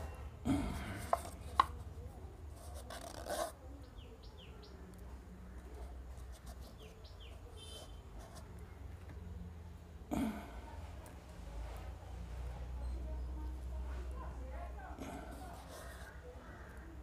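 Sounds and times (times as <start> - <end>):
rustling and handling plastic cup: 0.0 - 3.6.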